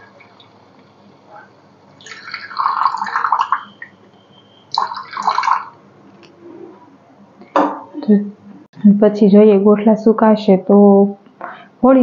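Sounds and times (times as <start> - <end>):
milk pouring into a pan: 2.0 - 3.7.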